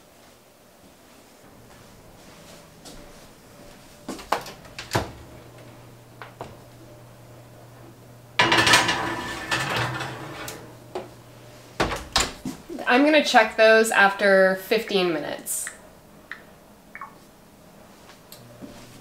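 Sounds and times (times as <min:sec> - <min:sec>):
low steady hum: 0:00.0 - 0:19.0
baking dish scraping metal rack: 0:08.4 - 0:10.8
oven door clicking open: 0:11.8 - 0:12.4.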